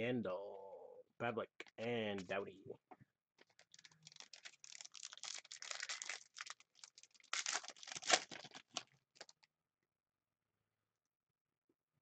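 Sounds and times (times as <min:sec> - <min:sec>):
wrapper crinkling and tearing: 0:03.4 - 0:09.5.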